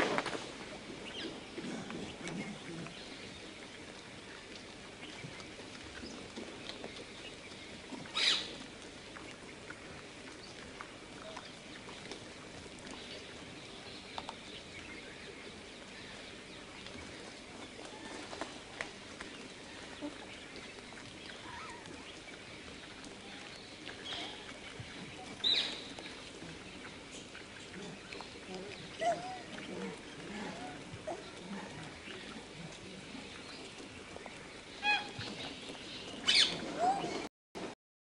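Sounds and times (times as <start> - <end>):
steady low hiss: 0.0 - 37.7.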